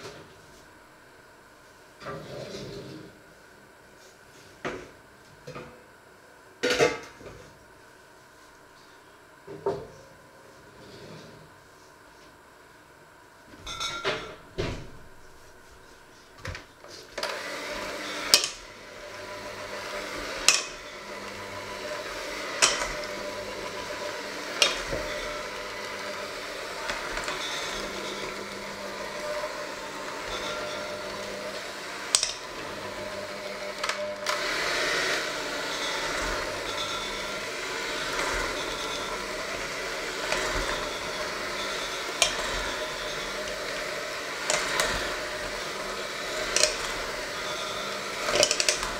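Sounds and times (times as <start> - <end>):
electric hand mixer running: 17.1 - 48.9.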